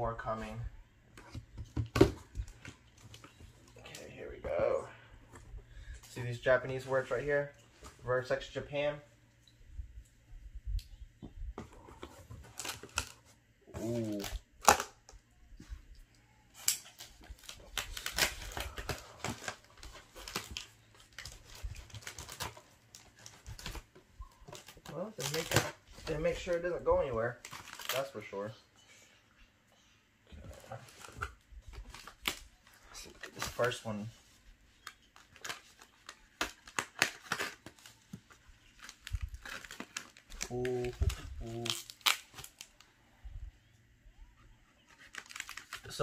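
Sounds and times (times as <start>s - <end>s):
cardboard and packing rustling: 11.2s - 14.4s, 16.5s - 28.2s, 30.3s - 42.8s.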